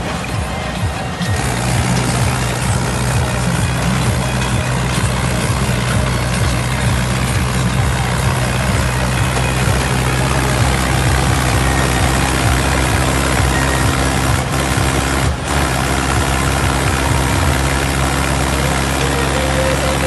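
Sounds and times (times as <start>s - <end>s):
tractor diesel engine droning: 0.0s - 20.0s.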